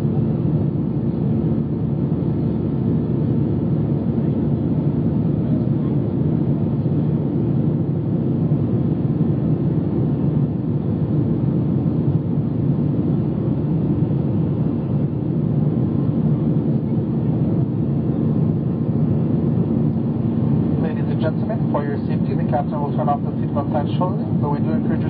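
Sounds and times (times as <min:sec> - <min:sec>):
jet engine drone in cabin: 0:00.0 - 0:25.0.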